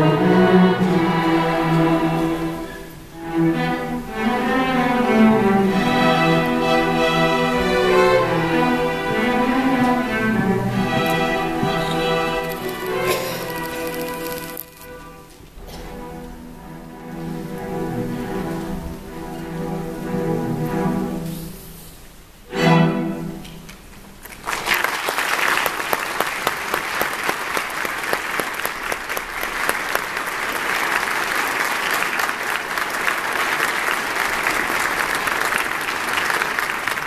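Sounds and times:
string orchestra playing: 0.0 - 24.2
audience applauding: 6.5 - 14.9, 24.2 - 37.0.

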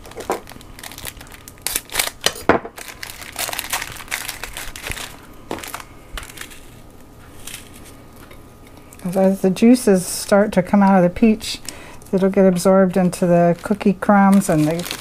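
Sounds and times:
cookies crumbling by hand: 0.0 - 9.1, 10.7 - 15.0
plastic wrapper crinkling: 0.0 - 9.1, 10.6 - 15.0.

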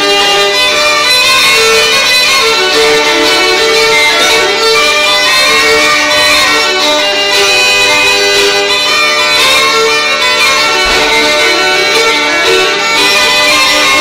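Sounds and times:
fiddle: 0.0 - 14.0
uilleann pipes: 2.3 - 7.9.

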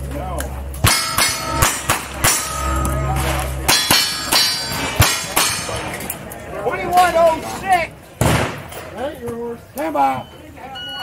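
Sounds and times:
steel targets ringing: 0.8 - 6.1
gunshots: 8.2 - 8.8.

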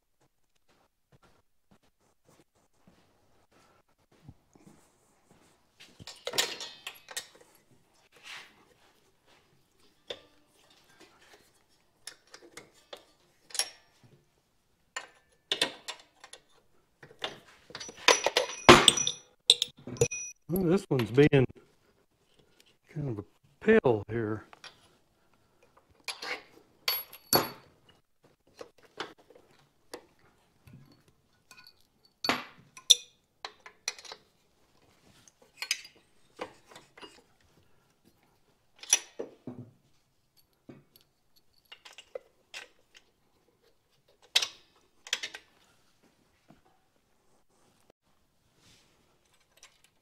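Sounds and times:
metal tools clinking: 6.0 - 7.6, 9.8 - 14.0, 17.2 - 20.7, 26.1 - 28.0, 30.7 - 34.3, 35.3 - 37.5, 40.3 - 45.5.

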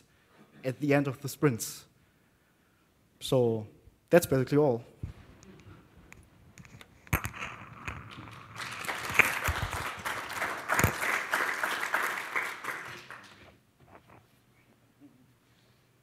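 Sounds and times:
audience applauding: 7.8 - 13.6.

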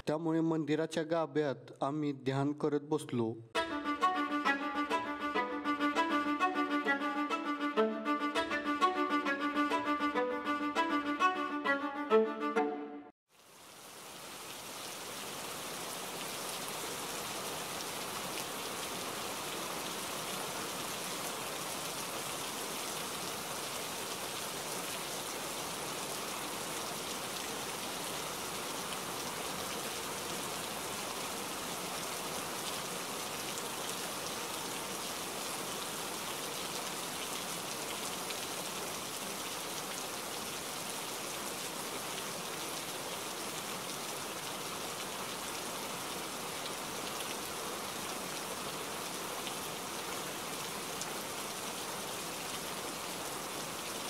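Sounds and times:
heavy rain falling: 13.4 - 54.0.

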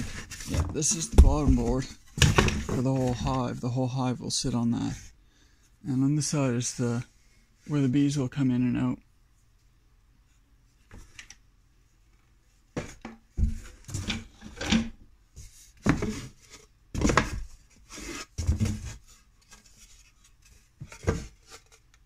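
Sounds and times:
wood scraping against cardboard: 15.8 - 21.9.

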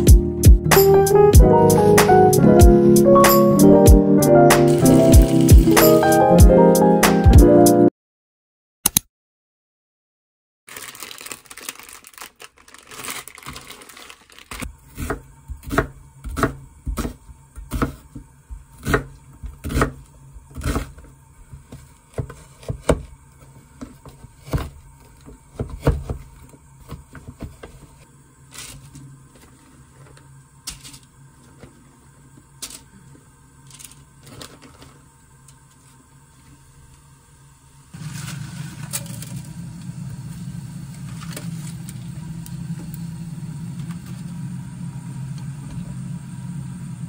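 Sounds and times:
plastic packet crinkling: 10.7 - 14.8
knife chopping on wooden board: 15.0 - 18.2, 18.8 - 20.0.

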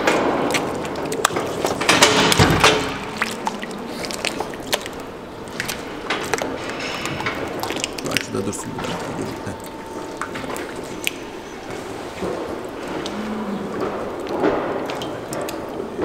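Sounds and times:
metal cattle crush rattling: 0.0 - 10.6.

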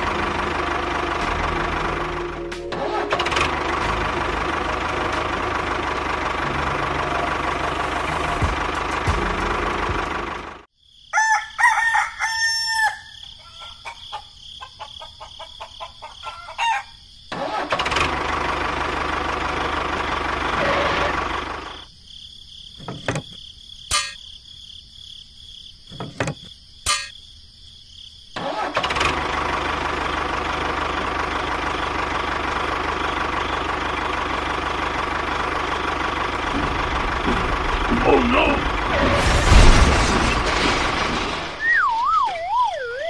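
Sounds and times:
tractor engine running: 0.0 - 10.7, 17.3 - 21.9, 28.4 - 42.3
rooster crowing: 11.1 - 17.0.

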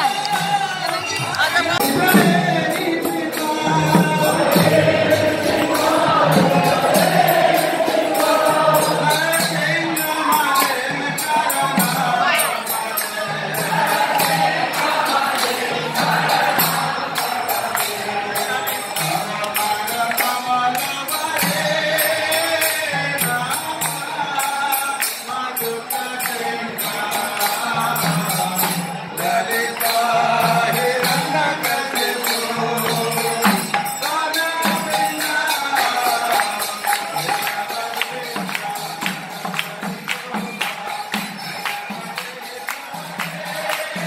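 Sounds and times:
crowd chanting and singing: 0.0 - 44.0
jingling metallic percussion: 0.0 - 44.0.

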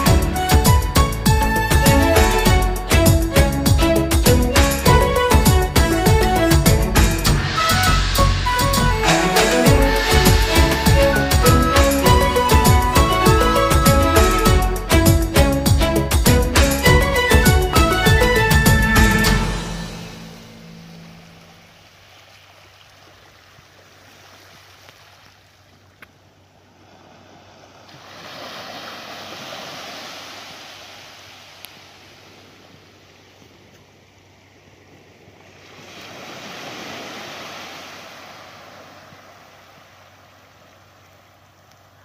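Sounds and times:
small waves washing onto beach: 20.5 - 42.0.

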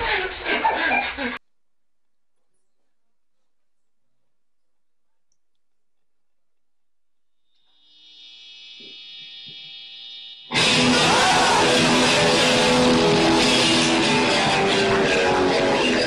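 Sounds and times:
guitar amplifier whine and hum: 7.2 - 16.0
loud electric guitar: 10.5 - 16.0.

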